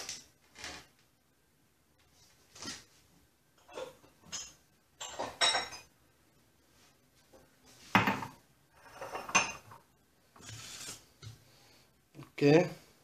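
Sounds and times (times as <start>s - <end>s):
glass and jug clinking on stone: 3.7s - 5.9s.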